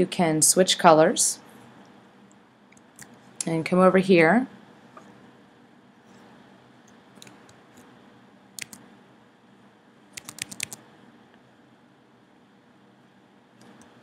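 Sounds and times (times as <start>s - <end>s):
computer mouse clicks: 8.6s - 8.8s, 10.2s - 10.8s, 13.6s - 13.9s.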